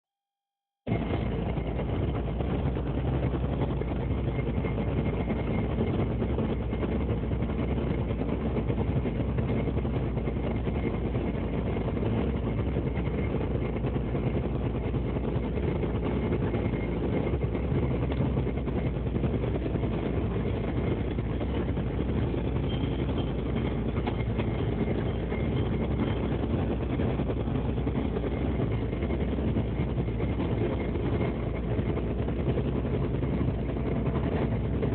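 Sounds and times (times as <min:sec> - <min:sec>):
boat engine running: 0:00.7 - 0:34.9
faint high whine: 0:00.9 - 0:34.9.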